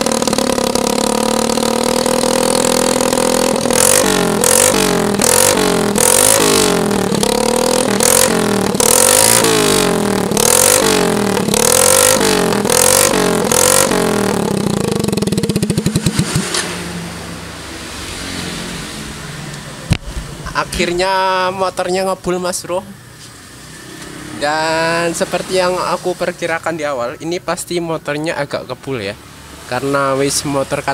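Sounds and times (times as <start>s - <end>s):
motorcycle engine revving: 0.0s - 20.9s, 23.5s - 26.2s.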